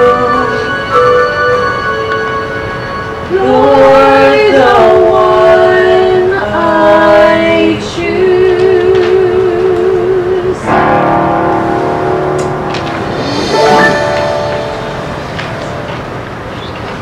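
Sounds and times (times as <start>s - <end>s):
man and woman singing duet: 0.0s - 2.1s, 3.3s - 10.8s
musical accompaniment: 0.0s - 4.2s, 10.6s - 16.5s.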